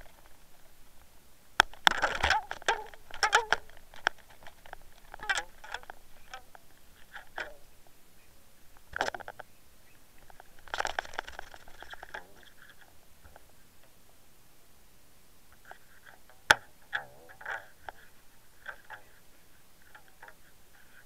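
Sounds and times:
landing net rustling: 1.6s - 7.7s, 10.2s - 12.6s.

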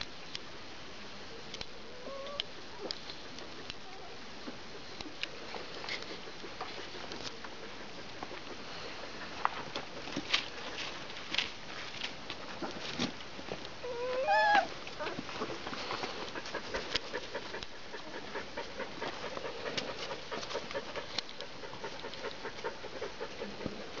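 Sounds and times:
puppy whining: 2.0s - 2.5s, 13.8s - 15.2s
puppies scuffling and clicking: 4.4s - 24.0s.

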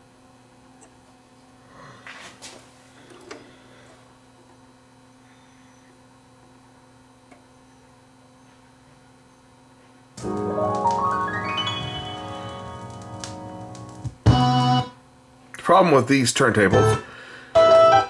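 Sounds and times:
faint steady hum: 0.0s - 18.0s
keyboard music from a record: 10.2s - 14.9s, 17.6s - 18.0s.

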